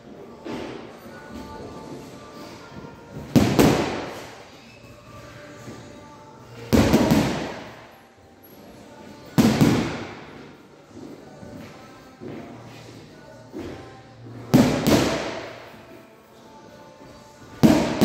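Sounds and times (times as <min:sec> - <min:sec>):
gloves punching heavy bag: 0:06.8 - 0:07.6, 0:17.6 - 0:18.0.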